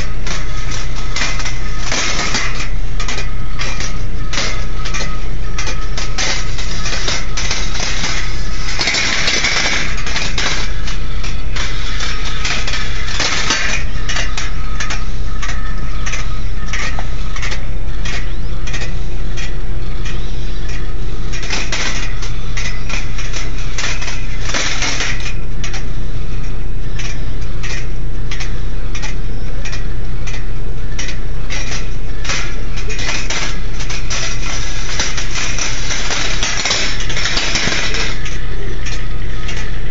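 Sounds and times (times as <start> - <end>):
steady low hum: 0.0 - 39.9
steel balls clicking on wire: 0.0 - 39.9.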